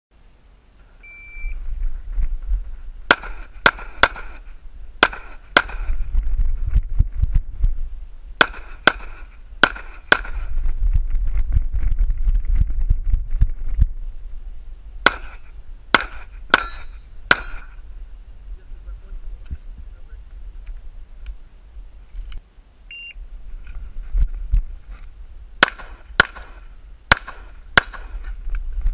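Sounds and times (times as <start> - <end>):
low microphone rumble: 0.2 - 28.9
shot timer beep: 1.0 - 1.6, 22.9 - 23.2
handgun shots: 3.1 - 4.4, 5.0 - 6.0, 8.4 - 10.5, 15.0 - 17.8, 25.6 - 28.3.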